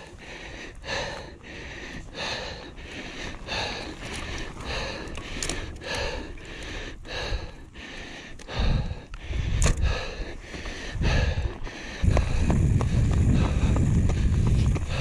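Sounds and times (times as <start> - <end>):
person breathing hard: 0.0 - 15.0
low rumbling on microphone: 11.0 - 15.0.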